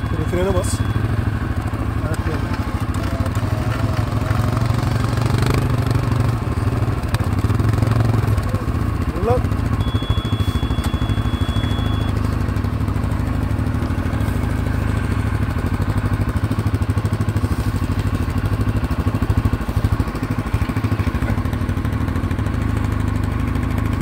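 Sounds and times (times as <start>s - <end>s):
atv engine idling: 0.0s - 24.0s
thin high tone: 9.8s - 12.2s.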